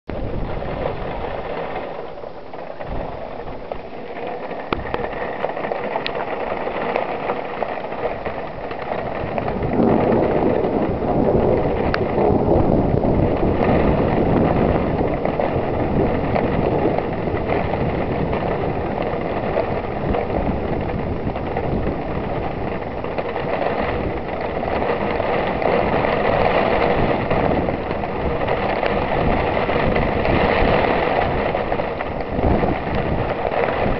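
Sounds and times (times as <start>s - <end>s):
heavy rain pouring: 0.1s - 33.9s.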